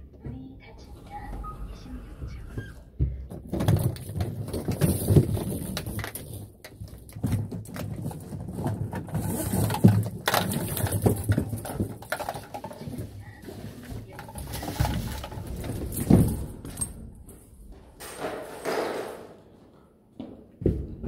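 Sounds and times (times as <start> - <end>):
metal shower hoses rattling: 3.4 - 17.4.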